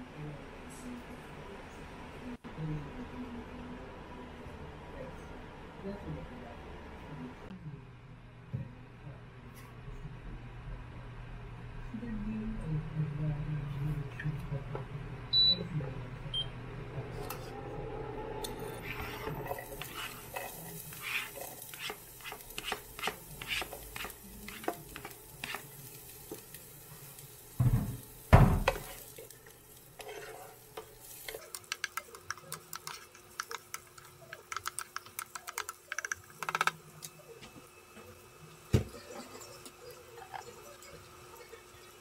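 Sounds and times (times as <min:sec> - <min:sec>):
onion and garlic sizzling in oil: 0:18.8 - 0:34.0
utensil stirring against pan: 0:18.8 - 0:36.8.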